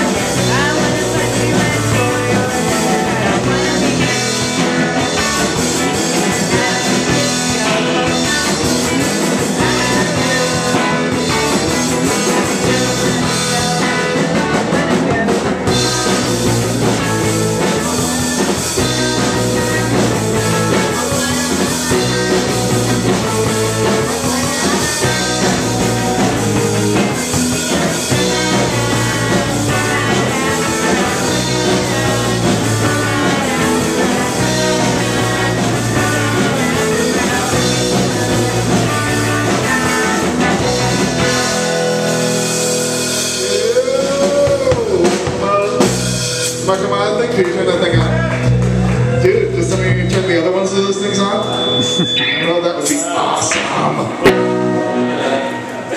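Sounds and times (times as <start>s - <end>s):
woman singing: 0.0s - 16.0s, 17.7s - 41.3s
live rock band playing: 0.0s - 55.9s.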